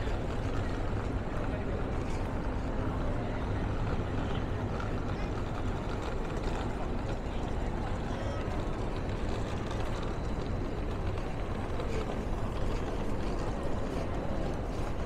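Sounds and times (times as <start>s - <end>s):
city street ambience: 0.0s - 15.0s.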